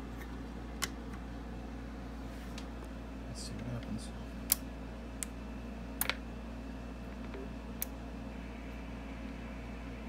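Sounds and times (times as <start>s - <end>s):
low hum: 4.1s - 10.0s.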